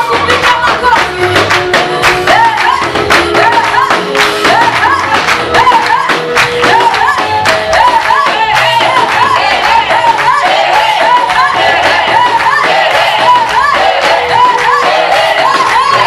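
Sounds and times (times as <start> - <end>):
woman singing into a microphone: 0.0 - 1.4, 2.2 - 16.0
band with steady drum beat: 0.0 - 7.4
backing singers: 2.0 - 16.0.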